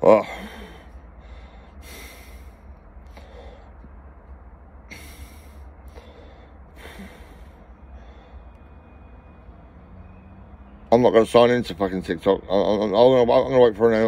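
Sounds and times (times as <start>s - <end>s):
man breathing heavily: 0.0s - 9.6s.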